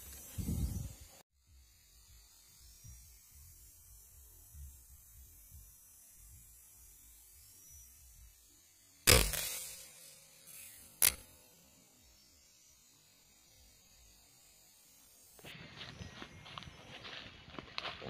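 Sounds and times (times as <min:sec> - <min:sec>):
air rifle shot: 0:09.1 - 0:11.2
short sharp click: 0:11.0 - 0:11.2.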